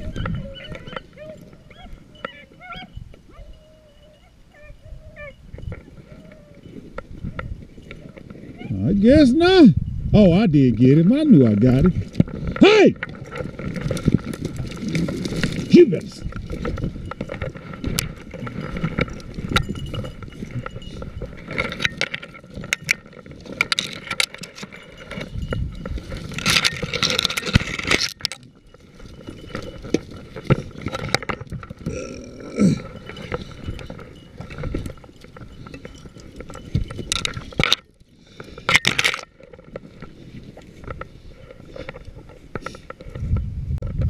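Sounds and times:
rustling through dry grass: 10.0s - 44.0s.

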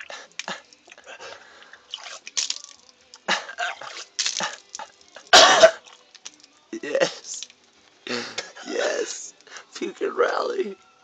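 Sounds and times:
vomit dripping: 0.0s - 8.6s
man retching and spitting: 3.2s - 6.0s, 8.1s - 8.6s.

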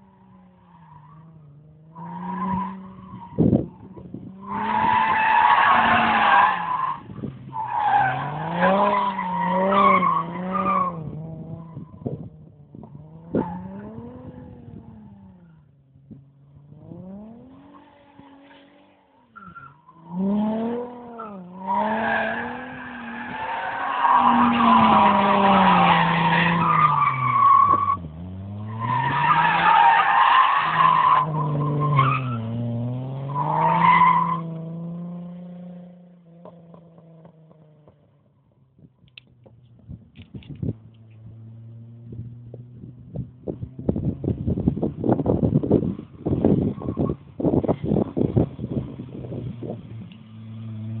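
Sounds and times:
car engine revving: 19.8s - 37.9s, 40.7s - 51.0s.

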